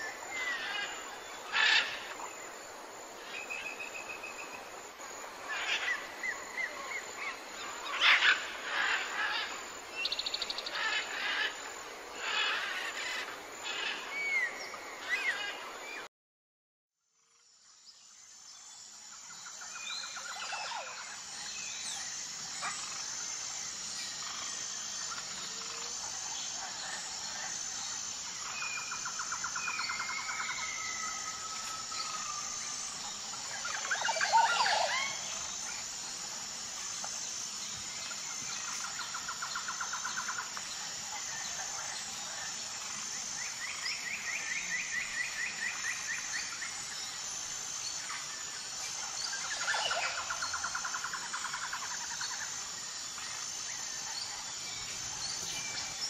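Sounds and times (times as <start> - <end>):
high-pitched insect drone: 0.0 - 16.0, 17.2 - 56.0.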